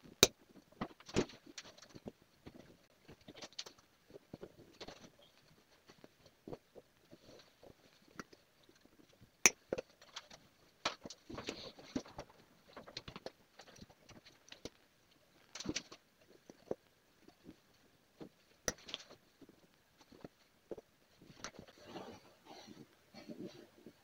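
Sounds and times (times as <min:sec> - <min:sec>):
pliers and wire clicking: 0:18.6 - 0:19.2.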